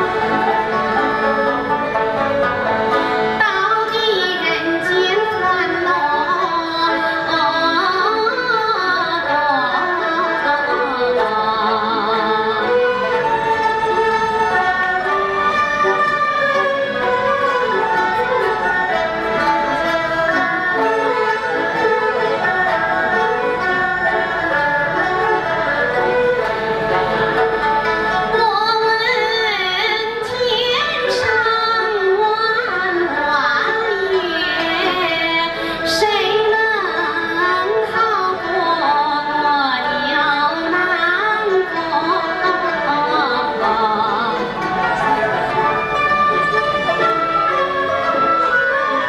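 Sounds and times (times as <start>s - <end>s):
traditional string orchestra: 0.0s - 49.0s
woman singing with vibrato: 3.3s - 13.1s, 28.4s - 44.6s.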